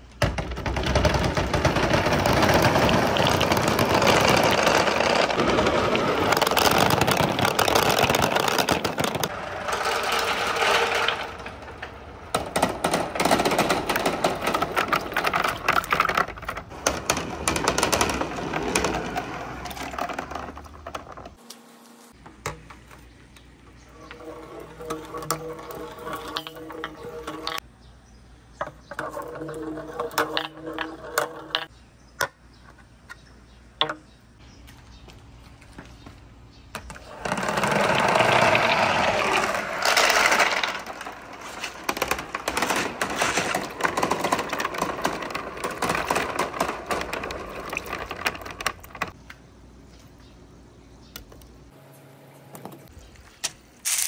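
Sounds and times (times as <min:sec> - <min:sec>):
glass marbles rolling and clattering: 0:00.3 - 0:21.4, 0:23.9 - 0:27.6, 0:28.9 - 0:31.7, 0:36.8 - 0:49.2
scattered marble clicks: 0:24.8 - 0:27.6.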